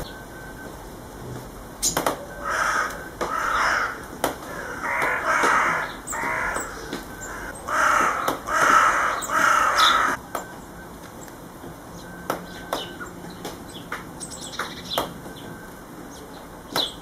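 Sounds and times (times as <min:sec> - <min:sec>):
harsh hoarse bird calls: 0:01.8 - 0:10.8.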